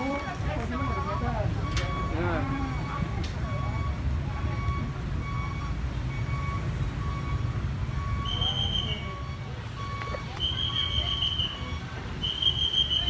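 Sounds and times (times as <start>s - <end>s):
high whistle-like tone: 8.0s - 13.0s.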